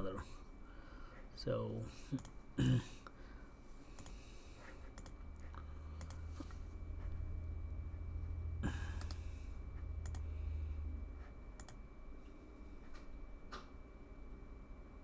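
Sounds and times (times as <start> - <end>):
low steady hum: 0.0 - 15.0
computer mouse clicks: 2.2 - 2.4, 3.9 - 4.2, 4.9 - 6.2, 9.0 - 9.2, 10.0 - 10.3, 11.6 - 11.8.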